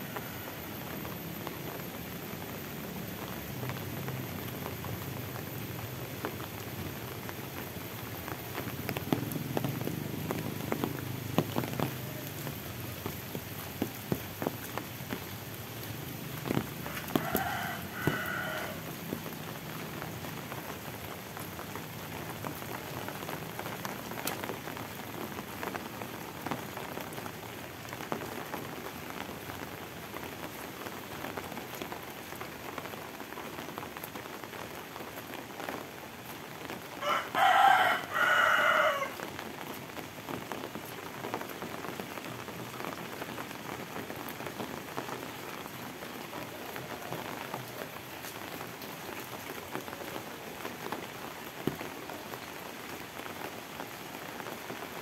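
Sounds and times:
steady rain falling: 0:00.0 - 0:55.0
rooster crowing: 0:16.8 - 0:19.0, 0:37.0 - 0:39.2.

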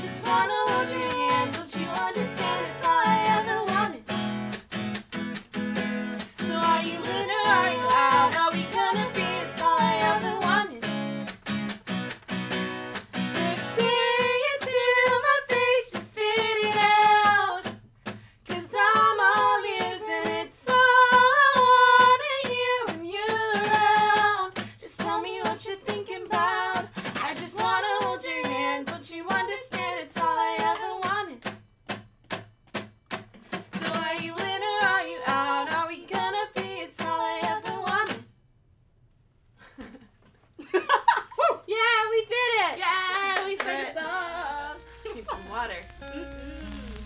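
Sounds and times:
women singing in harmony: 0:00.0 - 0:04.0, 0:06.3 - 0:10.8, 0:13.2 - 0:17.6, 0:18.5 - 0:31.4, 0:33.8 - 0:38.2, 0:42.8 - 0:45.8
acoustic guitar: 0:00.0 - 0:38.5, 0:39.7 - 0:47.0.

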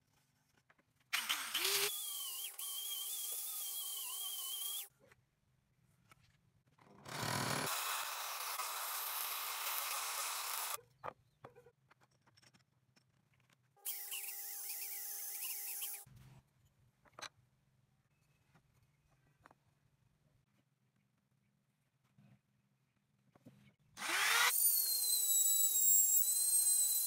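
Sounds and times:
angle grinder grinding wood: 0:07.0 - 0:10.8, 0:24.0 - 0:27.0
angle grinder whining: 0:07.1 - 0:10.8, 0:24.0 - 0:27.0.

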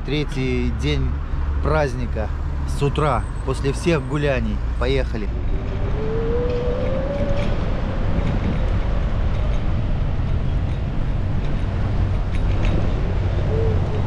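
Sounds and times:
bicycle wheels rumbling: 0:04.7 - 0:14.0
wind on microphone: 0:05.2 - 0:14.0.

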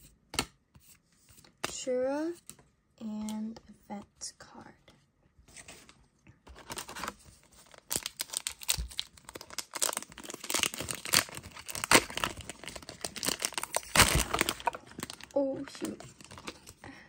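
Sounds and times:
foil wrapper tearing and crinkling: 0:06.6 - 0:16.6.

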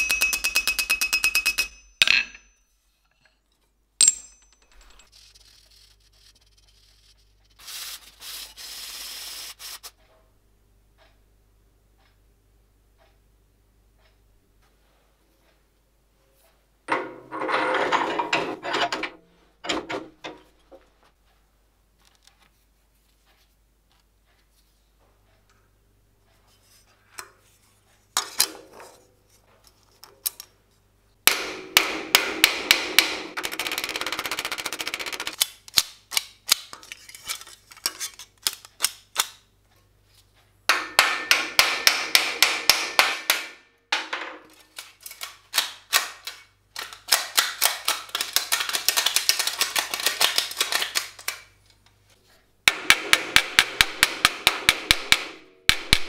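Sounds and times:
hammer striking steel plate: 0:00.0 - 0:02.6, 0:04.0 - 0:05.0, 0:31.3 - 0:33.4, 0:40.7 - 0:44.1, 0:52.7 - 0:56.0.

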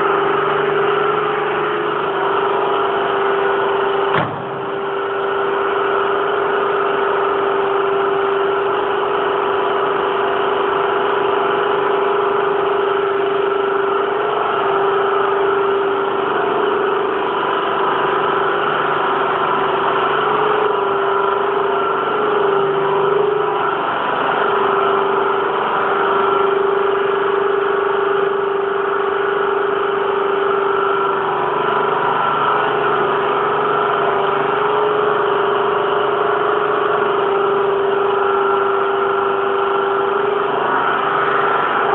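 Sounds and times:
electric machinery humming and whining: 0:00.0 - 0:41.9.

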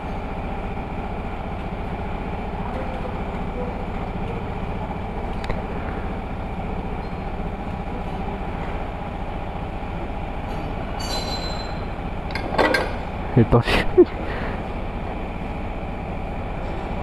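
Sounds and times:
motor droning: 0:00.0 - 0:17.0
sharp metal clanks: 0:10.5 - 0:13.0.

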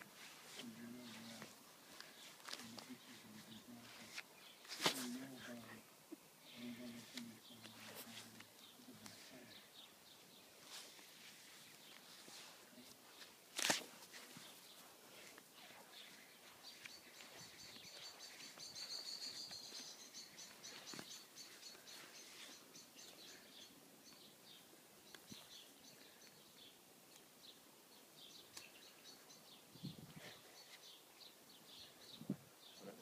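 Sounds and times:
bird chirping trills: 0:15.6 - 0:26.8, 0:27.4 - 0:33.0.

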